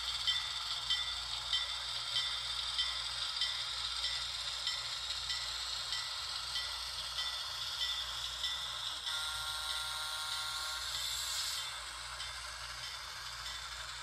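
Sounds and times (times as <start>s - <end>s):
locomotive bell ringing: 0.2s - 11.0s.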